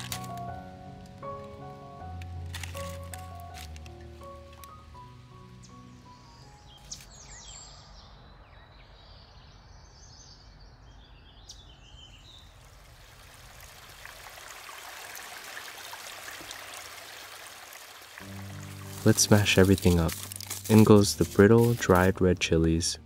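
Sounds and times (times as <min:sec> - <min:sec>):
creek trickling over stones: 0:00.0 - 0:05.3, 0:12.4 - 0:22.9.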